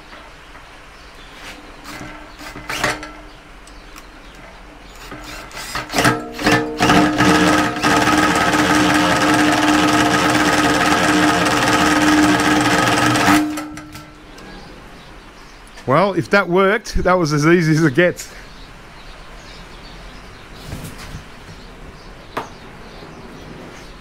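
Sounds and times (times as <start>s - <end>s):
cordless drill whirring: 1.8s - 3.1s, 4.9s - 14.0s.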